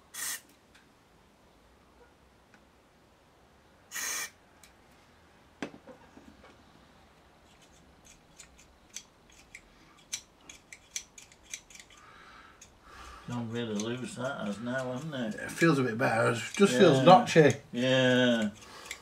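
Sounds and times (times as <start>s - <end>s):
aerosol spray squirt: 0.1s - 0.5s, 3.9s - 4.3s.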